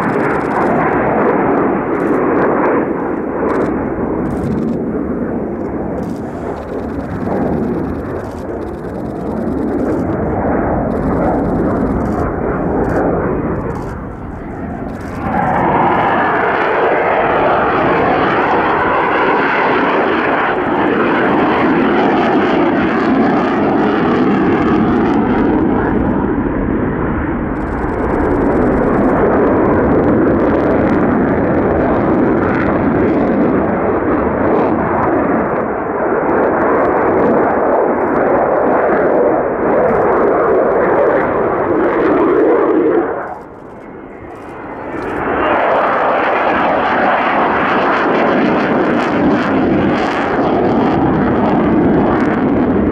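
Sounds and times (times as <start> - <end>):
fighter jet roaring overhead: 0.0 - 52.9.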